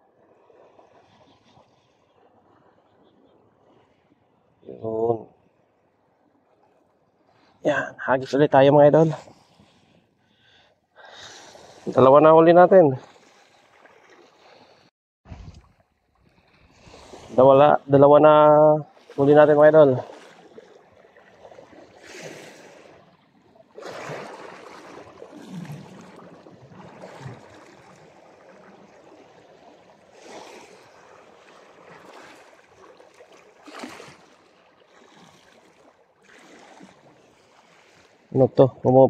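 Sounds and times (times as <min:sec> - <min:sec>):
sea waves splashing against rock: 0:18.9 - 0:39.0.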